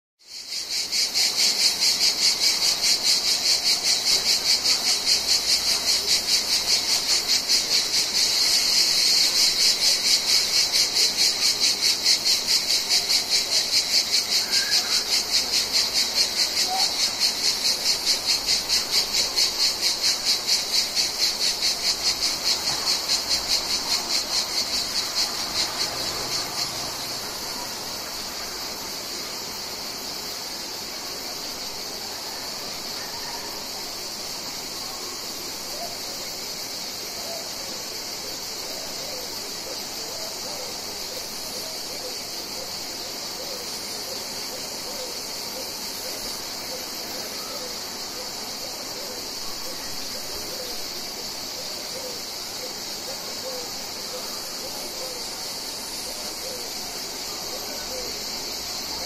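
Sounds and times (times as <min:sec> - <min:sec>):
cicadas buzzing: 0:00.2 - 0:59.0.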